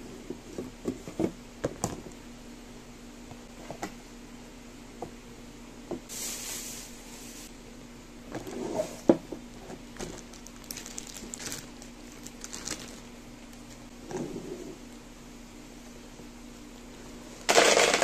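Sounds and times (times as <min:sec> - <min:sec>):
pellets shifting: 0:10.0 - 0:13.1, 0:17.5 - 0:18.0
plastic bag crinkling: 0:10.0 - 0:13.8.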